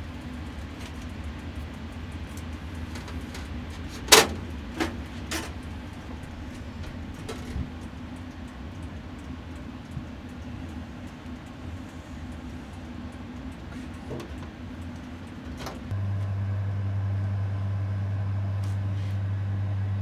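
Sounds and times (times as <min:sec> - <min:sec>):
low mechanical hum: 0:00.0 - 0:20.0
metal grill rack clanking: 0:04.0 - 0:07.9.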